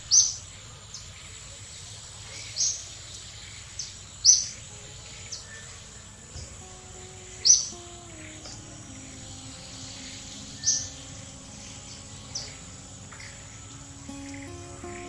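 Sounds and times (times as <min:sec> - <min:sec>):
steady background hiss: 0:00.0 - 0:15.0
birds chirping: 0:03.8 - 0:15.0.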